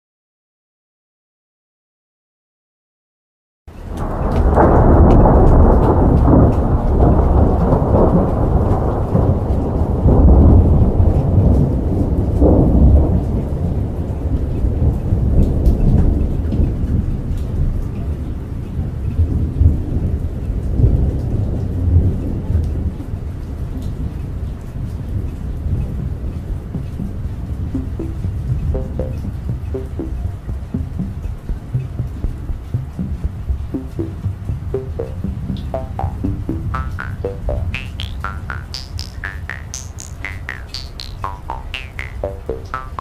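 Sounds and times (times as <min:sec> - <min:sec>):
rain: 0:03.7 - 0:43.0
rolling thunder: 0:04.0 - 0:13.1.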